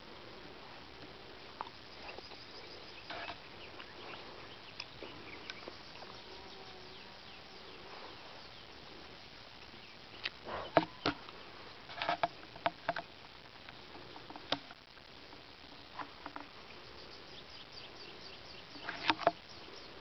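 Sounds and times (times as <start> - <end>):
insects chirping and buzzing: 0.0 - 20.0
steady hiss: 0.0 - 20.0
sharp clicks and knocks: 11.9 - 13.2.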